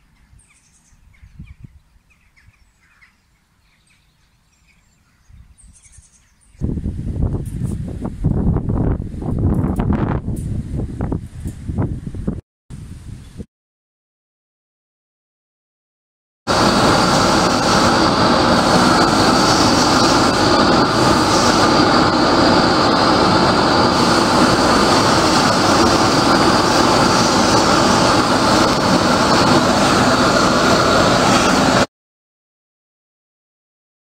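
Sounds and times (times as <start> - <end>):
gas torch flame rushing: 16.5 - 31.9.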